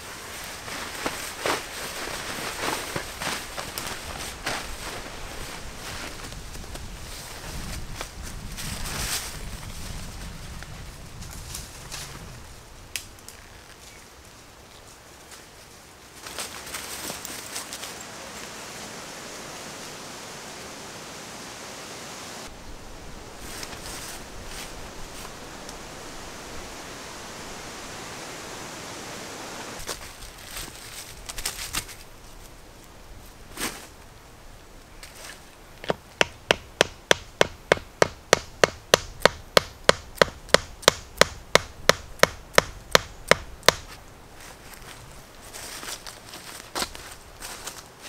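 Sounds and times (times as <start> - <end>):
rustles in leaf litter: 0.0 - 35.6, 43.9 - 48.0
steady hiss: 0.0 - 48.0
hatchet knocking tent peg: 35.8 - 43.8.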